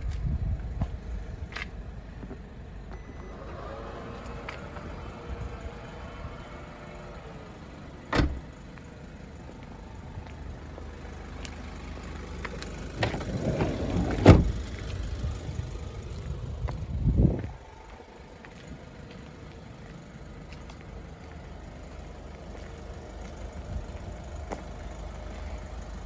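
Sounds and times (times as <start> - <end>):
car door rattling: 8.1 - 8.5, 13.0 - 14.6
car door slamming: 8.1 - 8.5, 13.0 - 14.6.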